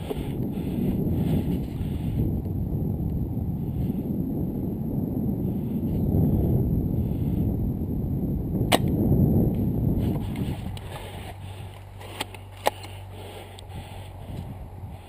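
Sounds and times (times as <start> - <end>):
wind rumble on microphone: 0.0 - 15.0
airsoft rifle snap: 8.7 - 9.0, 12.1 - 13.0.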